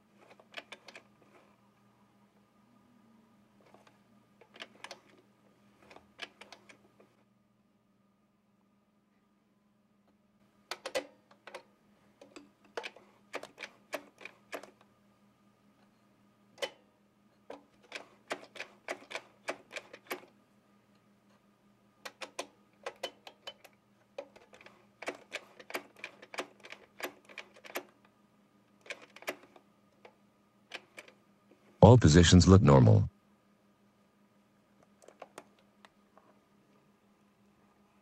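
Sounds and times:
sewing machine clicks: 17.5s - 20.3s, 22.0s - 27.9s, 28.8s - 29.6s.

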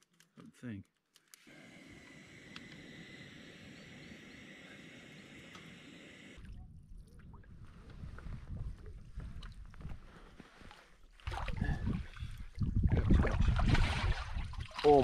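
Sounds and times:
camp stove burner hissing: 1.4s - 6.4s
wind rumbling on microphone: 2.3s - 10.5s, 11.2s - 15.0s.

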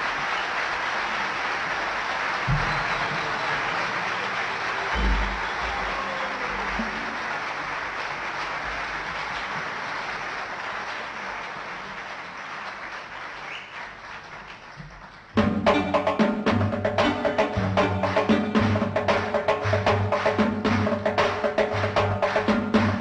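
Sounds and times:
audience applause: 0.0s - 15.4s, 17.0s - 23.0s
low drum beats: 2.5s - 3.4s, 5.0s - 7.1s
hand percussion strikes: 5.0s - 6.0s.

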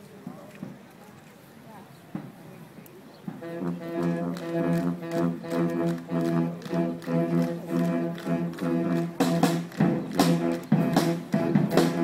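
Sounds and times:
marching band playing: 3.3s - 12.0s
percussion steady beat: 3.3s - 12.0s
brass chords: 3.4s - 12.0s.

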